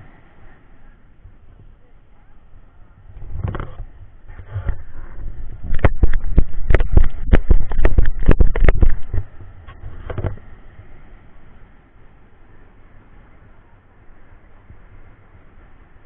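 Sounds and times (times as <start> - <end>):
surf breaking on shore: 0.0 - 16.0
loud crackling knocks: 3.2 - 10.4.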